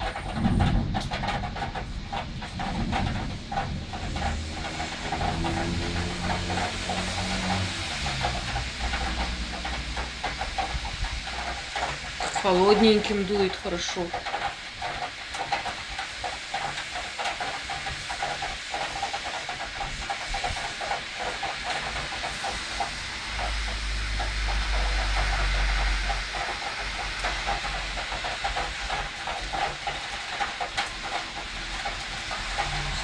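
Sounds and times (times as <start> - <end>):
deep thunder rumble: 0.0 - 14.4
heavy rain pouring: 0.0 - 33.0
wind: 0.0 - 33.0.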